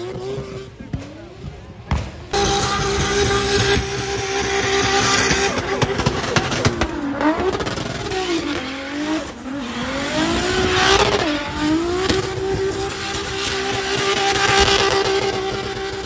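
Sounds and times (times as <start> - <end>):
car engine revving: 0.0 - 16.0.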